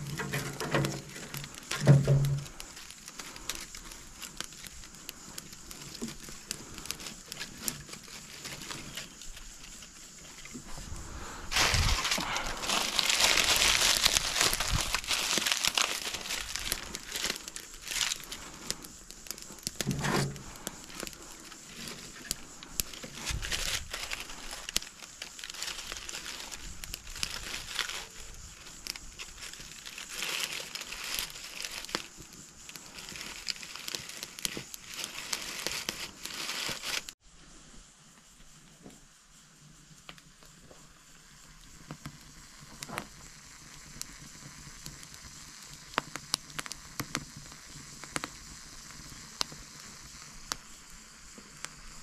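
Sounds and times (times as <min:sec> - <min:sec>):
dry leaves crumpled by hand: 0:00.0 - 0:37.2
wood fire crackling: 0:00.0 - 0:37.2, 0:40.0 - 0:52.0.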